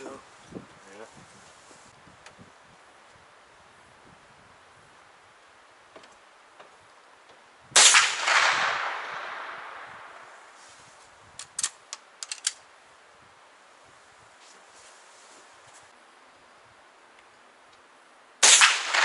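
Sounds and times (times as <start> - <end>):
gunshot echoing: 7.8 - 10.4, 18.4 - 19.0
sharp clicks: 11.4 - 12.6.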